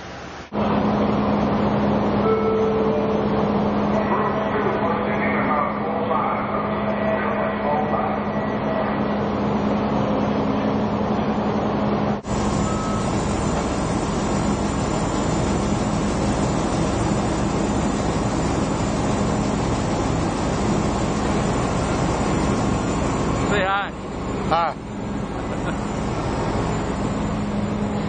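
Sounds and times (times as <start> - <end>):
drilling rig machinery din: 0.2 - 28.0.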